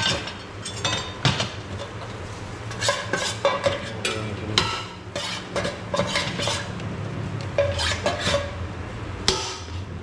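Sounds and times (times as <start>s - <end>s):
utensil clinking against a pan: 2.7s - 6.6s.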